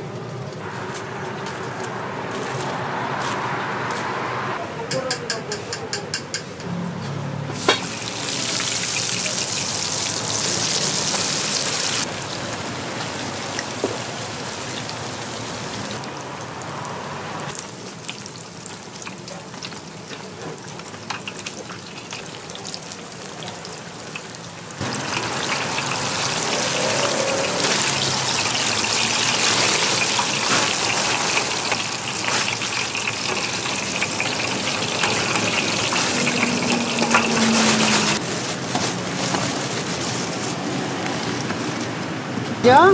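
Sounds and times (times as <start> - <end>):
donuts sizzling in hot oil: 7.6 - 38.4.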